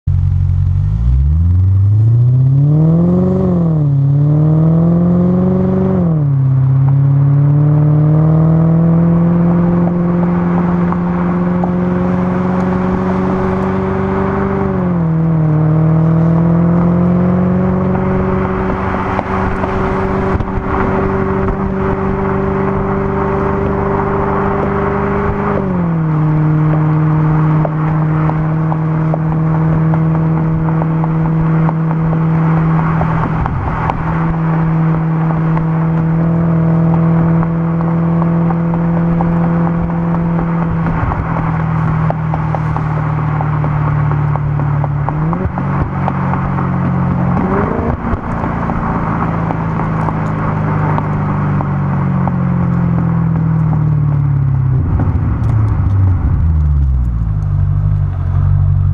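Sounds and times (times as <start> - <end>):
car engine and exhaust revving: 0.0 - 58.9
wind on microphone: 17.4 - 36.6, 54.5 - 57.5.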